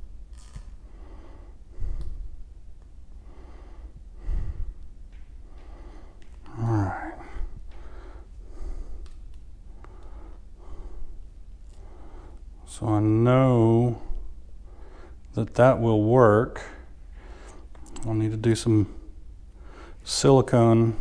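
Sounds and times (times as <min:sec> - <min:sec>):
man breathing through nose: 0:00.8 - 0:02.4, 0:03.1 - 0:06.4, 0:07.0 - 0:12.6, 0:14.0 - 0:15.2, 0:16.8 - 0:17.8, 0:19.6 - 0:20.0.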